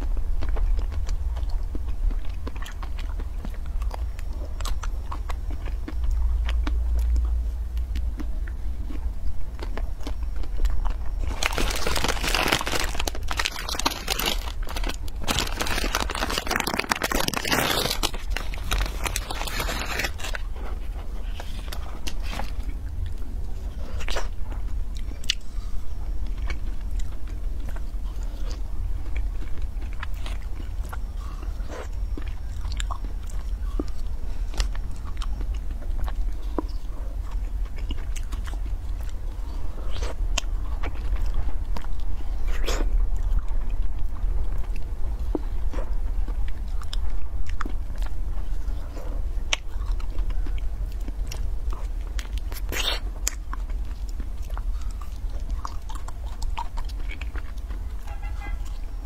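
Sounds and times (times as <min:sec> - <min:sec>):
biting and chewing ice cream: 0:00.0 - 0:59.0
plastic wrapper crinkling and tearing: 0:11.2 - 0:20.6.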